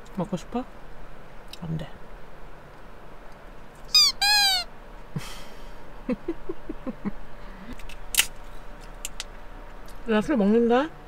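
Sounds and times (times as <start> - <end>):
dog whining: 3.9 - 4.7.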